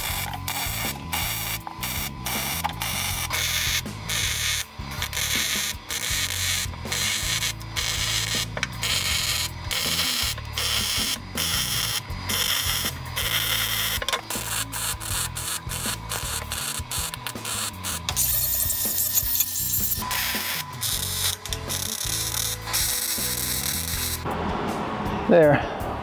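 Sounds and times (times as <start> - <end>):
welding arc crackling and hissing: 0.0 - 24.3.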